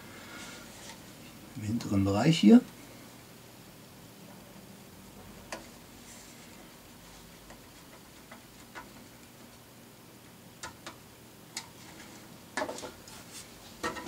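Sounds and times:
rustle of handling parts: 0.4 - 1.5, 11.5 - 14.0.

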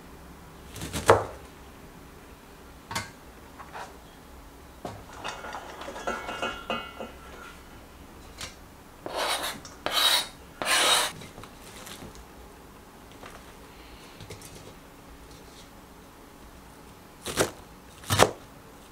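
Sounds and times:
cutting board scraping bowl: 9.0 - 11.2.

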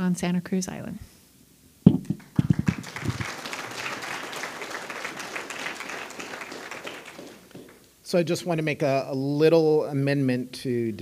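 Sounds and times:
audience applauding: 2.0 - 7.9.

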